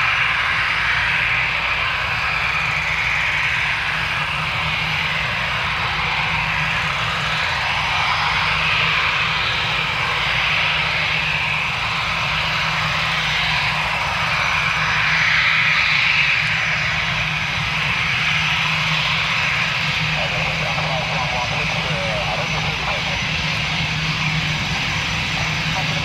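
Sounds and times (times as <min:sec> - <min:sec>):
jet engine whine: 0:00.0 - 0:26.0
low hum: 0:15.6 - 0:26.0.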